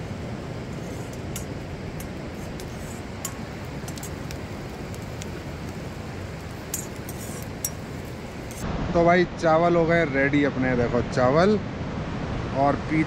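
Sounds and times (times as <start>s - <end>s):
flowing river water: 0.0s - 8.6s.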